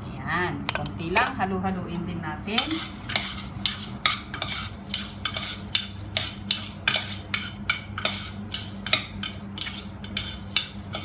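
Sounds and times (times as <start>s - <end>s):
utensil stirring rice: 2.6s - 11.0s.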